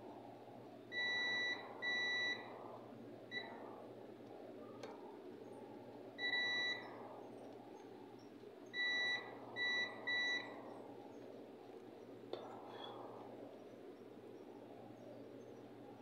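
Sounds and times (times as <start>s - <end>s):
multimeter continuity beeps: 0.9s - 2.5s, 3.3s - 3.6s, 6.2s - 6.9s, 8.7s - 10.6s
faint click: 4.2s - 5.0s.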